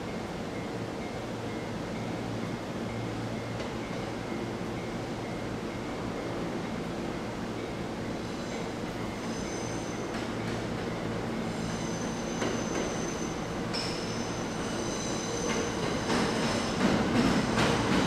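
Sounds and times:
train wheels squealing on rails: 7.6s - 18.0s.

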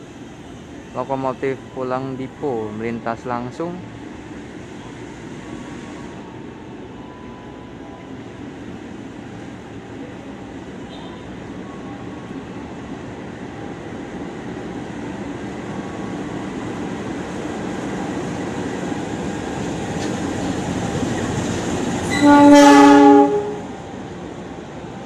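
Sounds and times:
locomotive engine and wheel noise: 0.0s - 25.0s
locomotive horn blast: 22.0s - 23.8s.

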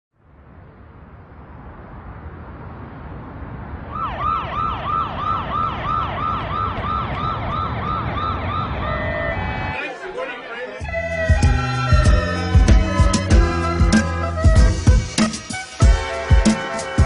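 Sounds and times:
vehicle low rumble: 0.1s - 9.8s
emergency siren yelping: 3.9s - 14.1s.

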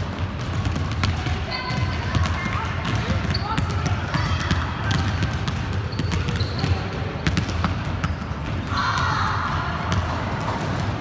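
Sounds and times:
basketballs bouncing on wooden floor: 0.0s - 11.0s.

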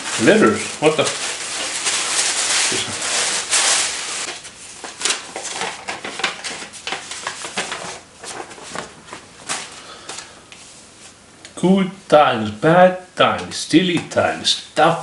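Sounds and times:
tissue paper crinkling: 0.0s - 9.8s
cards and envelopes rustling: 0.0s - 10.3s.

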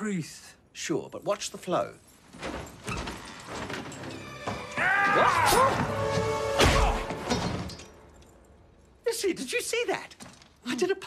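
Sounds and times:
music: 3.4s - 8.6s.

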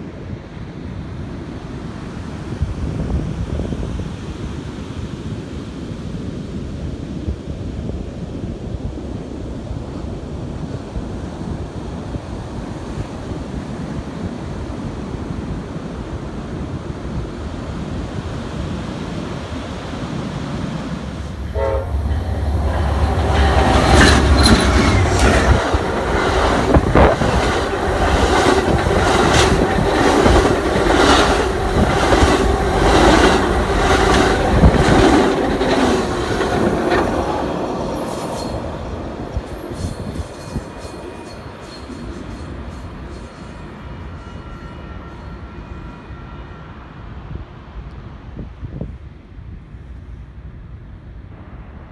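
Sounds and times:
wind on the microphone: 0.0s - 41.2s, 47.1s - 51.9s
ocean surf: 0.0s - 47.8s
passenger train rumbling past: 0.0s - 51.9s
train wheels clattering over rail joints: 22.1s - 43.3s.

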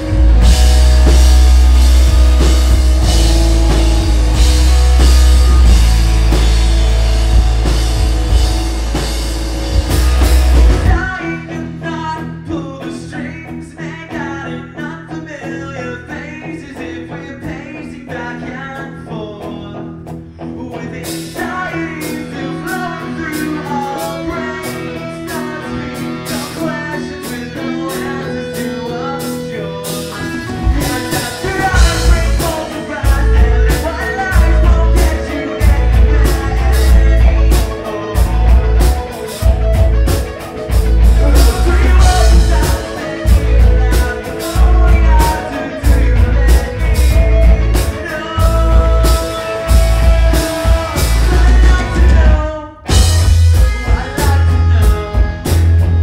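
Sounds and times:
bass and kick drum: 0.0s - 11.1s, 31.6s - 56.0s
person singing: 0.0s - 56.0s
rock band playing live: 0.0s - 56.0s.

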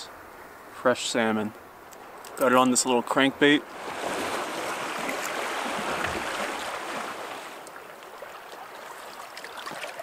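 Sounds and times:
water rushing along canoe hull: 3.6s - 10.0s.

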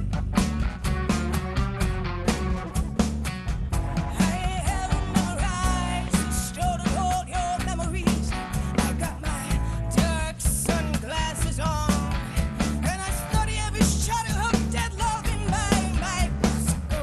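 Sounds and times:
live band music: 0.0s - 17.0s
woman singing: 4.0s - 12.2s, 12.8s - 17.0s.

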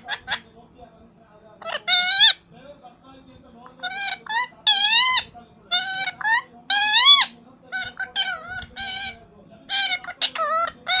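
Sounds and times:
parakeet squawking: 0.0s - 0.5s, 1.6s - 2.5s, 3.6s - 11.0s.

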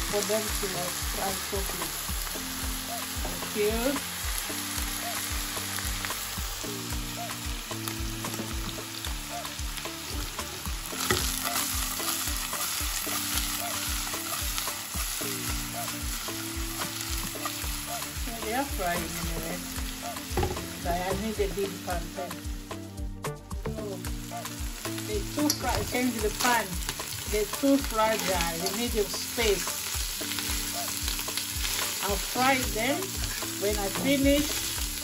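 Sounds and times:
fish sizzling in oil: 0.0s - 22.7s, 23.9s - 35.0s
afrobeat music: 1.9s - 35.0s
pieces tossed in pan: 25.3s - 35.0s.

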